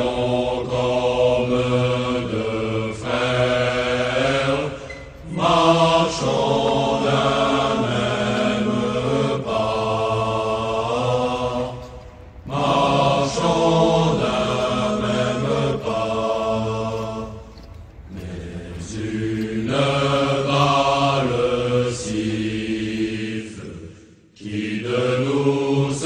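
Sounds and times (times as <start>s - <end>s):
solemn chanted singing: 0.0s - 26.0s
singers breathing: 4.7s - 5.2s, 23.8s - 24.4s.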